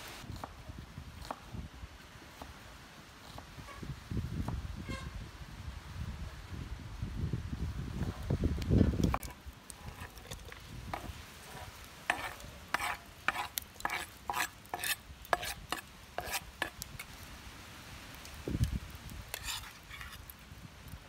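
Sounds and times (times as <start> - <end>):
metal spoon scraping wooden board: 9.1 - 17.1, 19.3 - 20.3.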